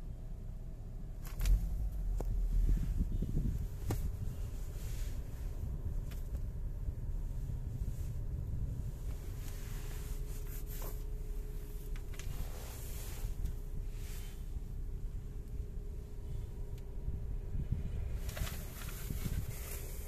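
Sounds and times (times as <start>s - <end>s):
car cabin rumble and hum: 0.0s - 20.0s
brief rustles: 18.2s - 20.0s.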